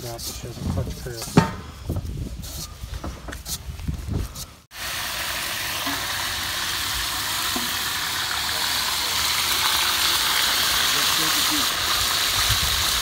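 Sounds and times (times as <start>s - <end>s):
meat sizzling in a pot: 4.7s - 13.0s.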